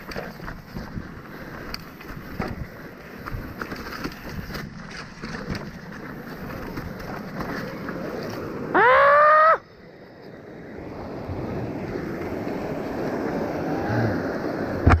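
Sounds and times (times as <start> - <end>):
tyres crunching over stones: 0.0 - 8.6
bike rattling over rocks: 0.0 - 8.7.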